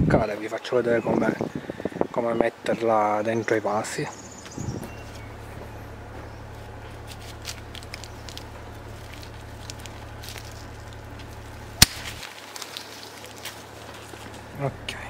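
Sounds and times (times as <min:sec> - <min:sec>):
pruning shears clicking: 0:07.0 - 0:13.5
woody stem snapping: 0:07.0 - 0:13.6.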